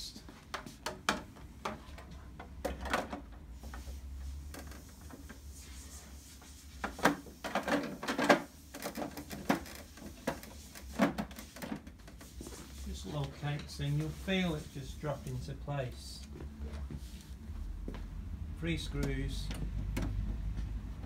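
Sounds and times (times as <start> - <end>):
plastic cover knocks and clacks: 6.9 - 12.2.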